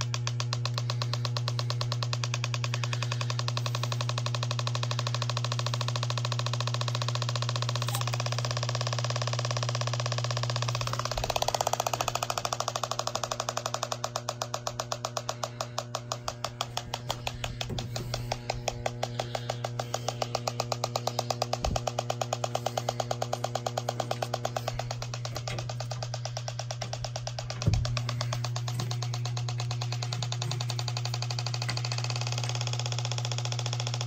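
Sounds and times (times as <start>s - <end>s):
leak detector ticking: 0.0s - 34.0s
steady hum: 0.0s - 34.0s.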